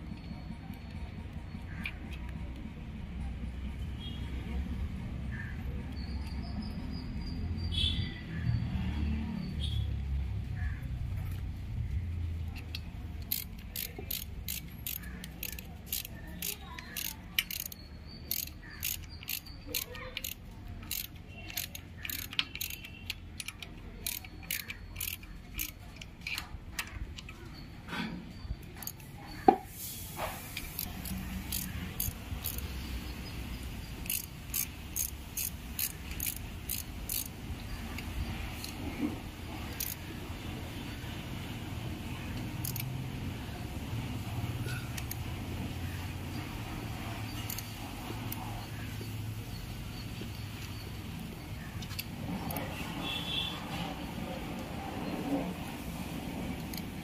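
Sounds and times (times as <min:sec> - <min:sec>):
metallic clicks of hand tools: 0:12.5 - 0:27.6, 0:28.6 - 0:29.1, 0:30.4 - 0:32.8, 0:34.0 - 0:40.1, 0:42.3 - 0:43.0, 0:44.6 - 0:45.3, 0:46.9 - 0:49.1, 0:56.5 - 0:57.0.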